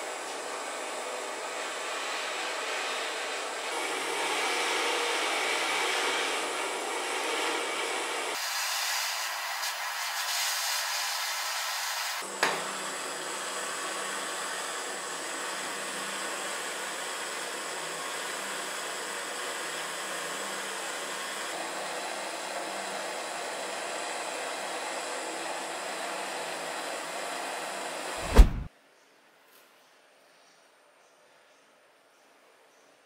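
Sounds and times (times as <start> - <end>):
low hum: 28.2 - 28.7.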